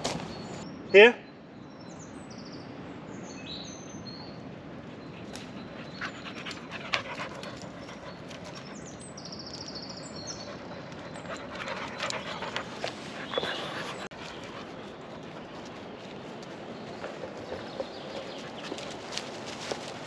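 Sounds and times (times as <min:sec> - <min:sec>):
birds chirping faintly: 0:00.0 - 0:20.0
dog panting: 0:05.1 - 0:08.8, 0:10.2 - 0:16.0, 0:16.8 - 0:19.9
paws on dry leaves and twigs: 0:10.9 - 0:20.0.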